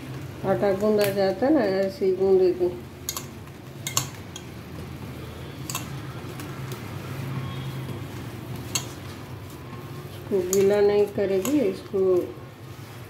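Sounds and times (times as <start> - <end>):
hand kneading dough: 3.5 - 13.0.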